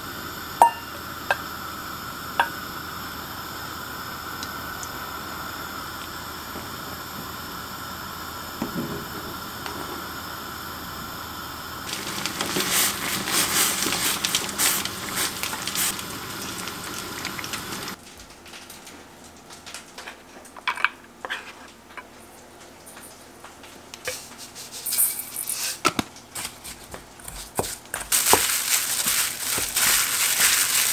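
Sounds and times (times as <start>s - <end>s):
stew simmering with bubbling hiss: 0.0s - 18.5s
water at rolling boil: 0.0s - 30.9s
spoon clinking steel bowl: 0.6s - 1.0s.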